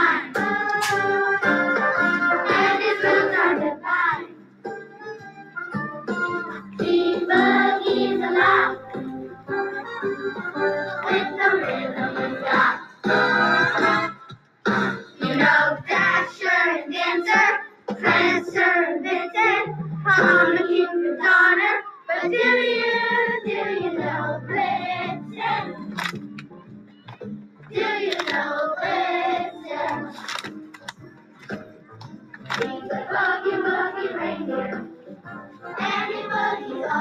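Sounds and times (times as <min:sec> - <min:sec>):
children singing a song: 0:00.0 - 0:04.4, 0:06.8 - 0:09.1, 0:11.0 - 0:14.1, 0:14.8 - 0:25.8, 0:27.8 - 0:30.2, 0:32.6 - 0:34.9, 0:35.6 - 0:37.0.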